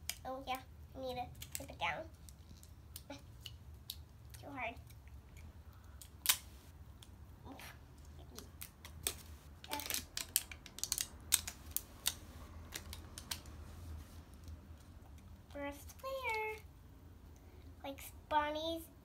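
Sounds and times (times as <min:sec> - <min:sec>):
plastic wrap crackling: 0:08.3 - 0:14.2.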